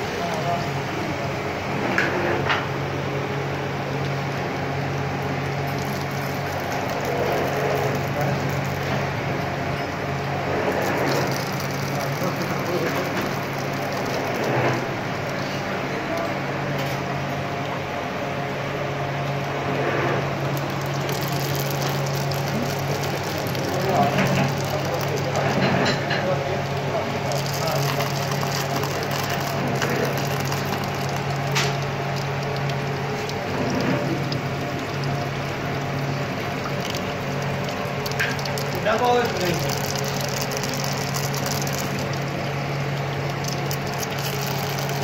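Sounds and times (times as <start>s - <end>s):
machine humming: 0.0s - 45.0s
electrode sparking crackle: 10.8s - 14.7s, 20.5s - 45.0s
constant hiss: 18.9s - 45.0s.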